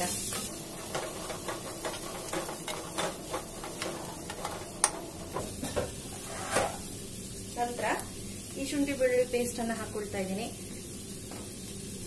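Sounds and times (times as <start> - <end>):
wooden spatula scraping a pan: 0.3 - 6.9.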